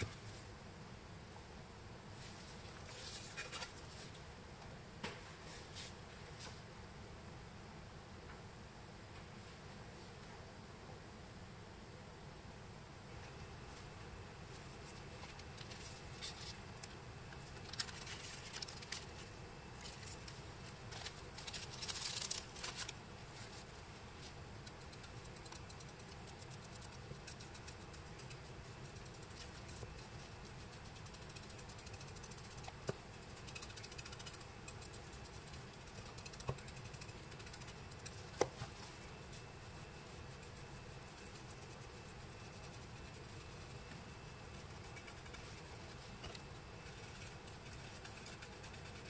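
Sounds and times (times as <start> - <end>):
low steady hum: 0.0 - 49.0
brush scratching and rustling: 2.2 - 4.2, 14.5 - 16.7, 17.5 - 49.0.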